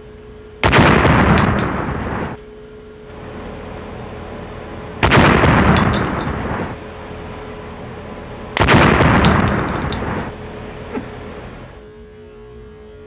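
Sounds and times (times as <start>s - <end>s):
loud explosion-like bangs: 0.6s - 2.4s, 5.0s - 6.8s, 8.6s - 10.3s.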